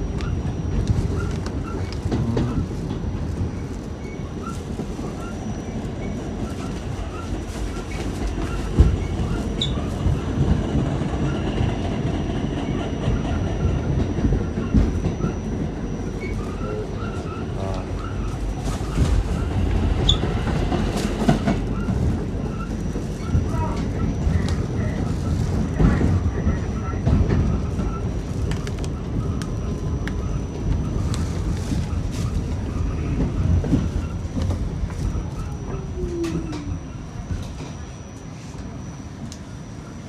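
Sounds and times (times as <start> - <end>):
subway car wheels rumbling on rail: 0.0 - 40.0
rail joint clicks and knocks: 6.0 - 31.2, 32.0 - 37.9.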